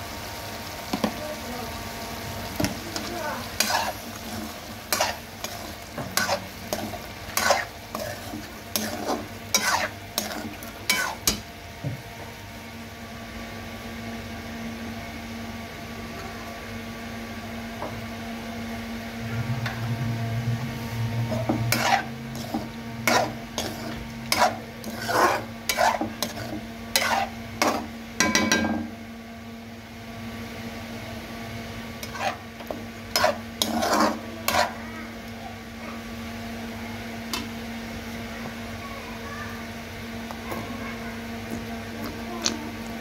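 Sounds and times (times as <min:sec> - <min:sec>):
light sizzle: 0:00.0 - 0:13.9, 0:16.7 - 0:43.0
steady hum: 0:00.0 - 0:43.0
metal spatula scraping a pot: 0:02.9 - 0:11.4, 0:21.2 - 0:27.9, 0:32.0 - 0:34.8.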